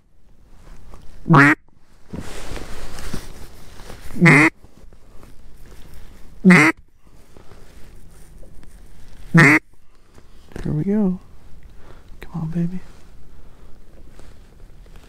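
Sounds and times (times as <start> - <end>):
faint rustling hiss: 0.0 - 15.0
duck call quacks: 1.3 - 1.6, 4.2 - 4.5, 6.4 - 6.8, 9.3 - 9.6.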